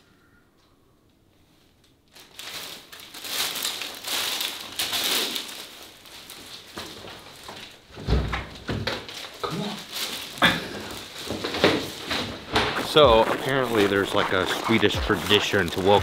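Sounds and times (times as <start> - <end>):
plastic wrapping crinkling: 2.1 - 7.9, 9.0 - 14.7.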